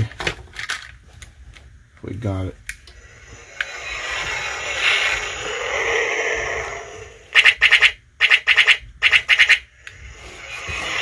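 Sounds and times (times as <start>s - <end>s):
toy rushing engine noise: 3.0s - 11.0s
toy laser fire bursts: 7.3s - 9.8s.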